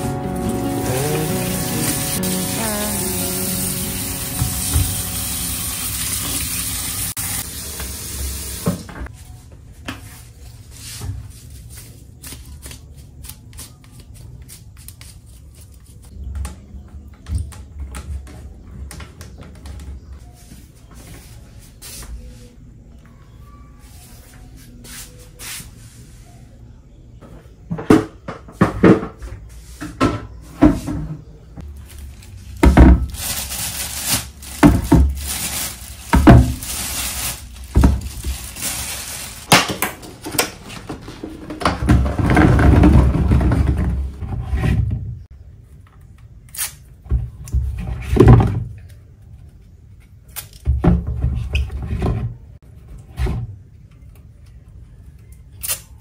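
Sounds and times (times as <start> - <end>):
tap running: 0.0 - 7.1
apples and bowls clattering in sink: 34.5 - 45.1.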